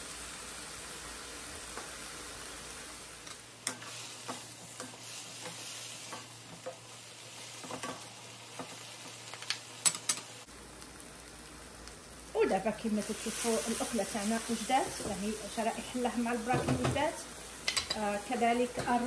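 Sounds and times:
food sizzling in a wok: 0.0 - 19.0
wooden spoon scraping and knocking pan: 16.0 - 18.0.

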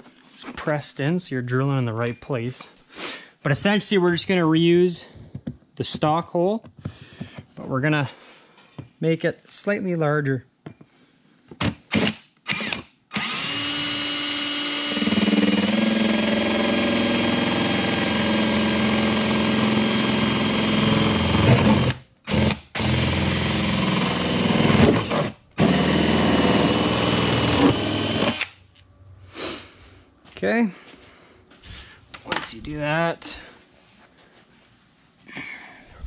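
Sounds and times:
cordless drill through plastic: 11.6 - 28.6.

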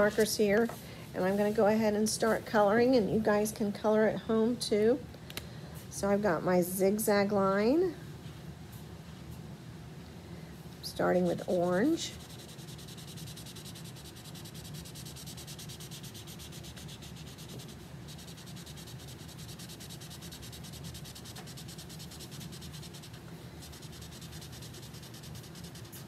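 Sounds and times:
marker scratching on paper: 11.6 - 26.0.

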